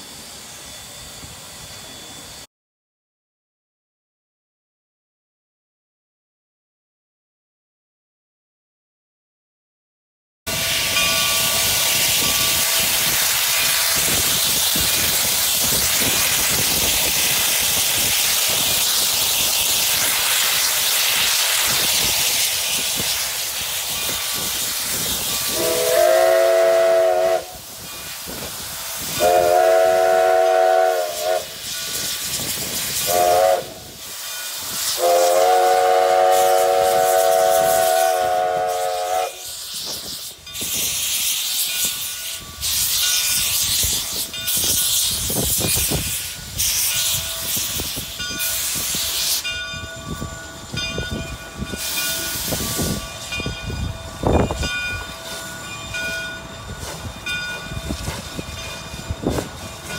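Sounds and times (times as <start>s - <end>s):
steam locomotive hissing: 0.0s - 2.5s, 10.5s - 59.9s
steam chime whistle blasts: 10.5s - 18.6s, 20.0s - 59.9s.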